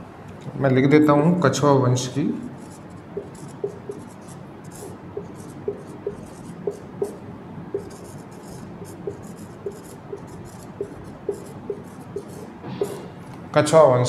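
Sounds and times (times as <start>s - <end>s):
marker writing on a whiteboard: 2.4s - 13.2s.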